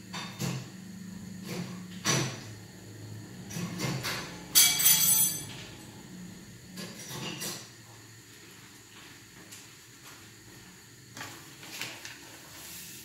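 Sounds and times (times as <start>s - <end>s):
steady low hum: 0.0s - 11.1s
kitchen utensils clattering: 3.5s - 5.8s
cutlery clinking on crockery: 3.8s - 5.6s.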